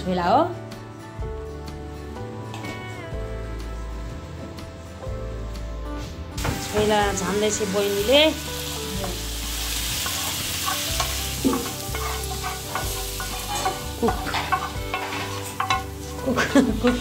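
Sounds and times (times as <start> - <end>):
oil and spices sizzling in a pan: 6.4 - 17.0
spatula tapping and scraping pan: 10.0 - 17.0.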